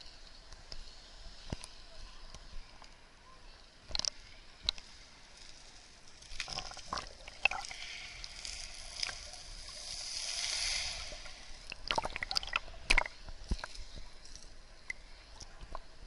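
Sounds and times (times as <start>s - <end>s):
sea water sloshing and gurgling: 6.4s - 14.3s
underwater hiss: 7.2s - 12.6s.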